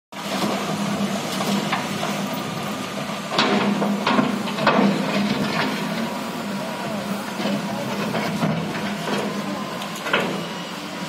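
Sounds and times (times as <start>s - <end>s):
diesel engine running: 0.1s - 11.0s
sharp knocks and clanks: 3.3s - 6.1s.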